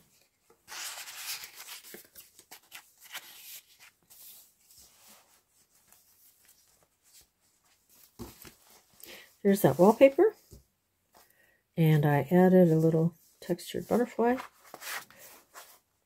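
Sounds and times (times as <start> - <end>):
paper pages rustling: 0.0 - 9.0, 13.9 - 15.8.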